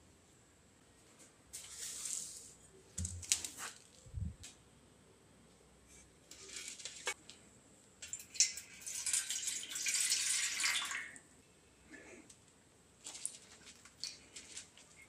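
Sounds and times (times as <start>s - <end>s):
water poured into metal bowl: 8.0s - 11.2s.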